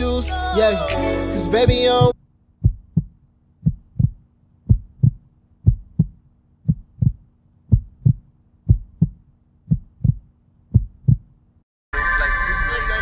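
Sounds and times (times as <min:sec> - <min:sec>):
heartbeat: 0:01.6 - 0:11.4.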